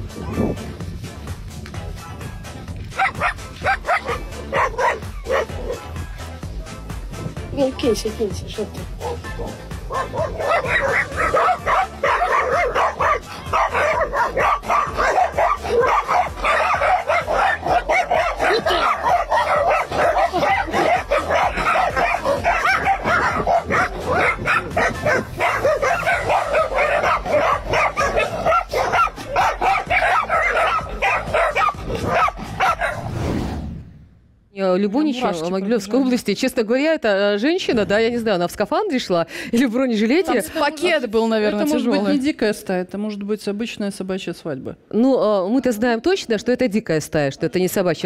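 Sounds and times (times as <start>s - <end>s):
dogs barking and yelping: 0.0s - 0.8s, 2.8s - 5.9s, 8.9s - 33.1s.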